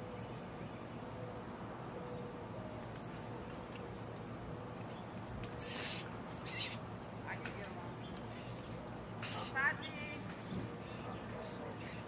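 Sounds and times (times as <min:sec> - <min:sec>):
short high bird chirps: 0:03.0 - 0:04.2, 0:04.8 - 0:12.0.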